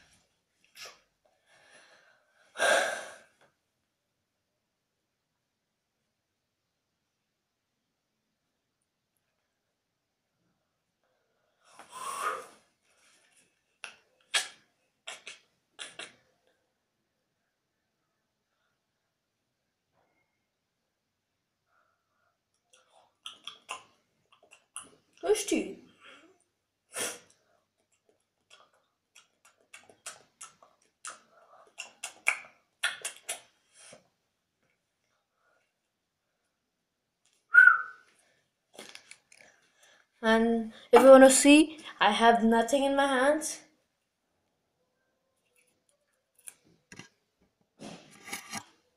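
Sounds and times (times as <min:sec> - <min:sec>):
hissing exhale: 0:11.7 - 0:12.6
mouth clicks and lip smacks: 0:13.8 - 0:16.6, 0:22.5 - 0:25.3, 0:27.0 - 0:34.1
short sharp puffs or sniffs: 0:26.9 - 0:27.3, 0:47.8 - 0:48.4.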